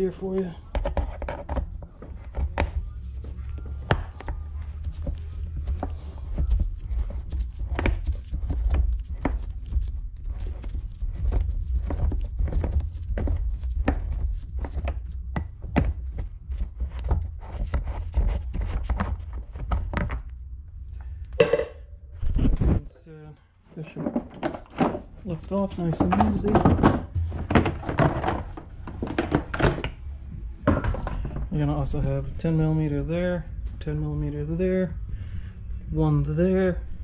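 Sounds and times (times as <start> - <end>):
low steady rumble: 29.9 - 37.0.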